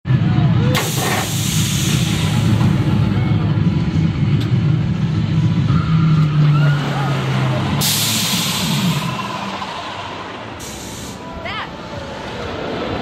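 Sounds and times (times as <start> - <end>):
roller coaster rumble: 0.1 - 13.0.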